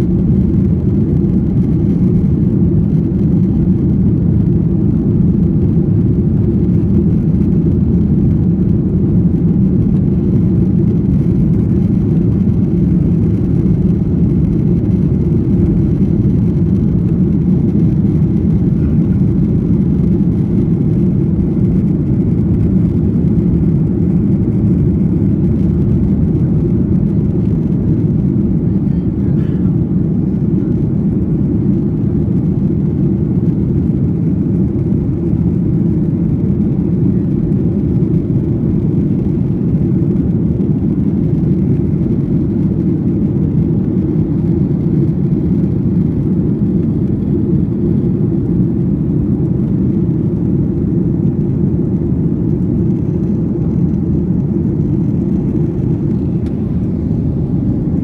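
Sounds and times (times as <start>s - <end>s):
jet engine cabin roar: 0.0s - 58.0s.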